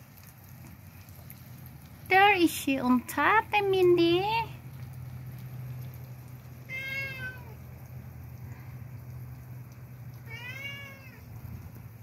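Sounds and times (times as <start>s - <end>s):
cat meowing: 6.7s - 7.6s, 10.2s - 11.3s.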